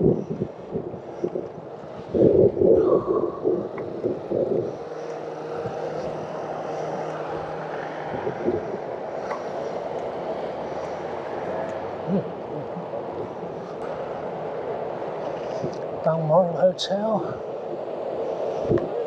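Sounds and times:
tyre and road noise: 0:00.0 - 0:19.0
wind buffeting microphone: 0:00.0 - 0:19.0.

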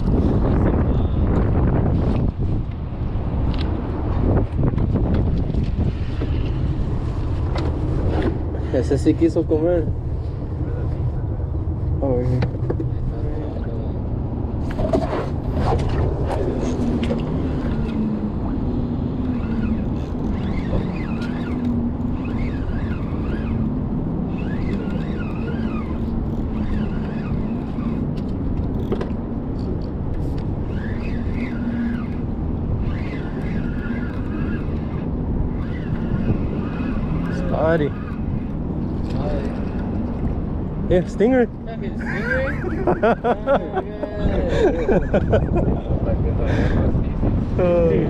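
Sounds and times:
outboard motor droning: 0:13.2 - 0:48.0.

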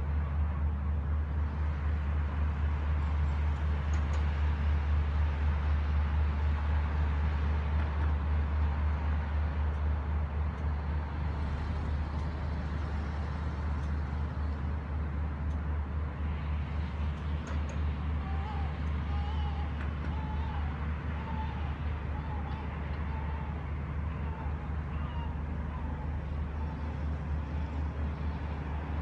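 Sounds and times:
distant road traffic rumble: 0:00.0 - 0:29.0.

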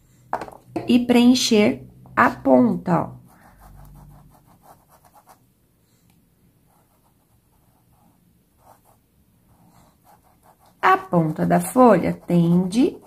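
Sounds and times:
paintbrush rubbing cloth: 0:03.2 - 0:05.4, 0:06.7 - 0:13.0.

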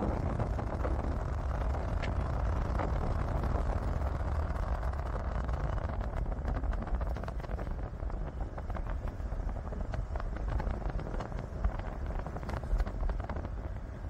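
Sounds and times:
vehicle rumbling on dirt track: 0:00.0 - 0:14.0.

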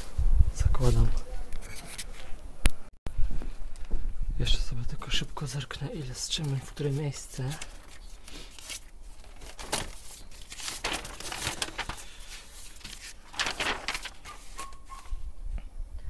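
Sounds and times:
paper pages rustling: 0:05.9 - 0:15.2.

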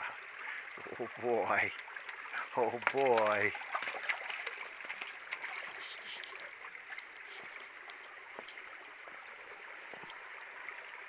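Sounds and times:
creek water trickling over rock: 0:00.0 - 0:11.0
faint splashes and clicks: 0:01.6 - 0:08.7.

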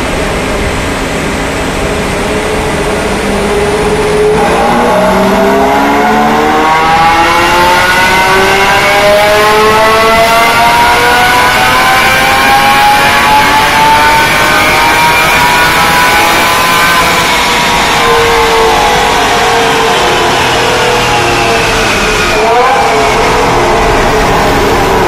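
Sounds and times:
car engine revving on dyno: 0:00.0 - 0:25.0.

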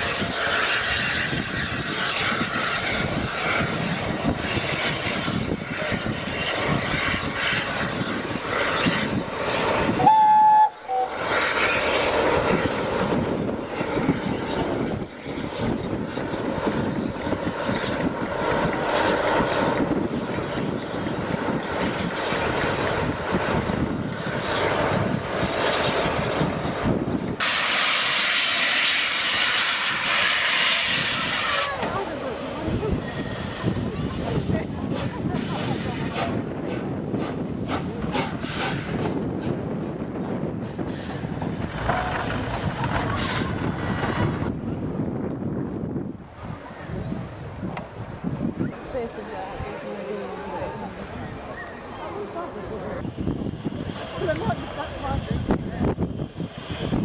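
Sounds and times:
steam train rumbling past: 0:00.0 - 0:57.0
train whistle blast: 0:10.0 - 0:11.2.

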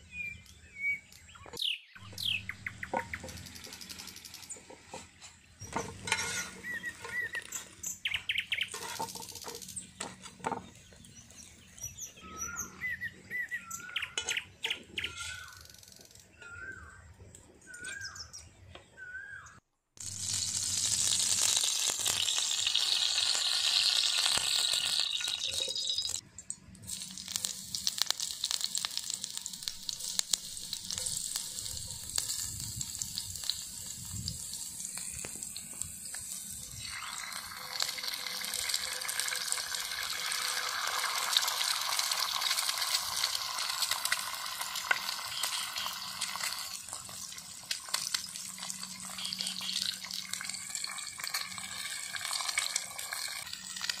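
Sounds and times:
birds chirping: 0:00.0 - 0:19.6, 0:48.8 - 0:50.1
hot oil sizzling in a frying pan: 0:05.6 - 0:07.8, 0:08.6 - 0:10.6, 0:20.0 - 0:26.2, 0:26.8 - 0:54.0.

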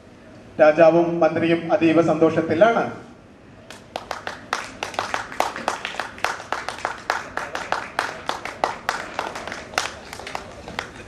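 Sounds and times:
people clapping: 0:03.7 - 0:11.0.

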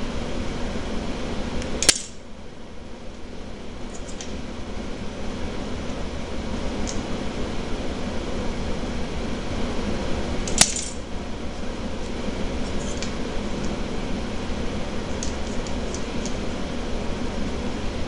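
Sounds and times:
room hum: 0:00.0 - 0:18.0
scissors snipping: 0:01.6 - 0:02.1
scissors metallic click: 0:01.8 - 0:02.2.

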